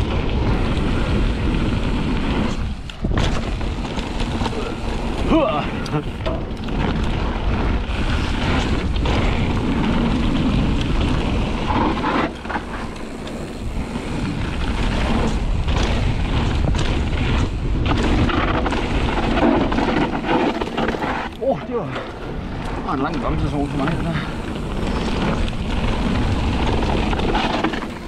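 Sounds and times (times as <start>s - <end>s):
bike rattling and knocking: 0.0s - 28.0s
tyres crunching over gravel: 0.0s - 28.0s
wind buffeting on microphone: 0.0s - 28.0s.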